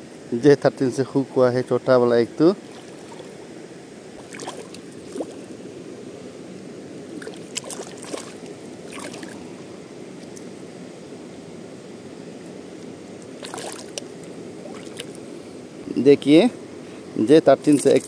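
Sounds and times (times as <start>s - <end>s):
river water rushing: 2.3s - 15.8s
fish splashing: 4.2s - 5.5s, 7.2s - 9.5s, 13.4s - 15.2s.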